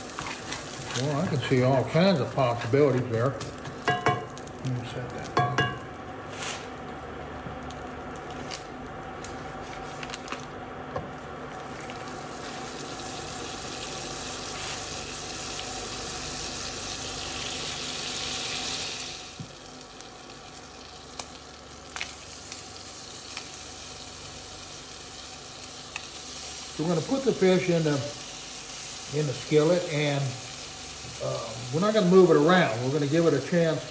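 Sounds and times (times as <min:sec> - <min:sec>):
butter sizzling in a skillet: 0:00.0 - 0:06.7, 0:11.4 - 0:33.9.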